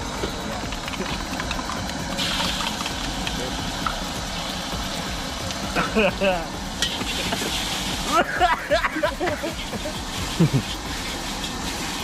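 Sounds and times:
eggs sizzling in hot oil: 0.0s - 12.0s.

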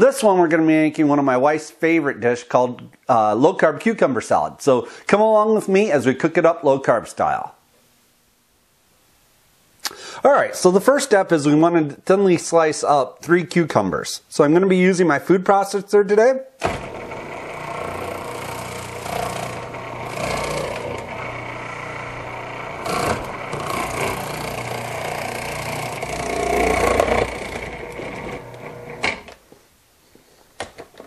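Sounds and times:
food processor slicing: 16.7s - 29.2s.

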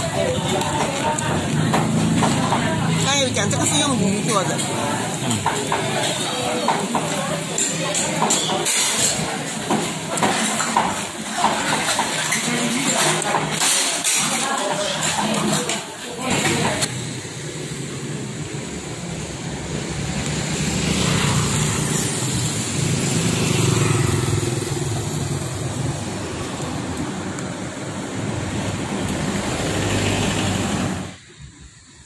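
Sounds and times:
car engines passing: 0.0s - 7.6s, 16.3s - 32.0s
motorcycle engine passing: 16.9s - 31.2s.

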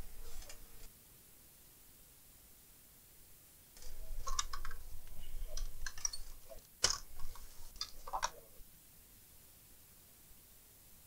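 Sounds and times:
clicks and knocks of handling: 3.8s - 8.4s.

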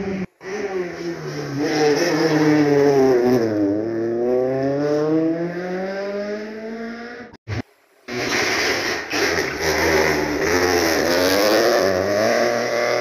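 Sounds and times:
rally car engine accelerating: 0.0s - 13.0s.

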